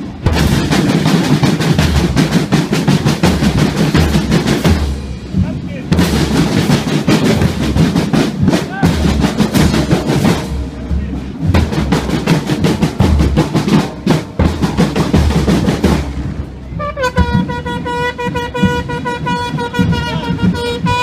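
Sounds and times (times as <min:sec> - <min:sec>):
marching band drums and cymbals: 0:00.0 - 0:21.0
long horn blast: 0:16.7 - 0:21.0.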